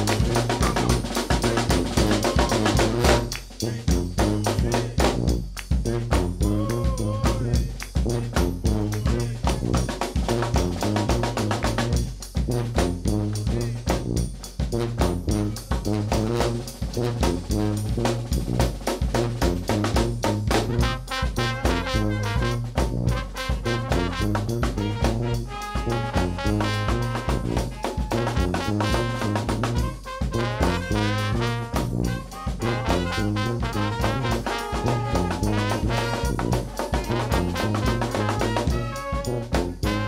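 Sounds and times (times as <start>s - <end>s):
hand claps: 0.0s - 1.4s, 2.2s - 3.6s, 5.5s - 5.8s, 6.7s - 8.1s
brass band playing: 0.0s - 40.0s.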